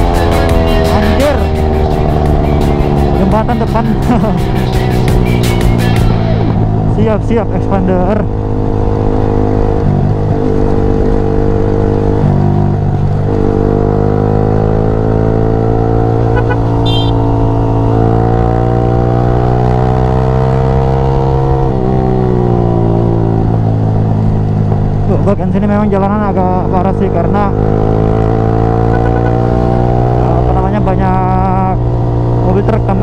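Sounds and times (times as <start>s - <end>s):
low wind rumble: 0.0s - 33.0s
motorcycle engine at road speed: 0.0s - 33.0s.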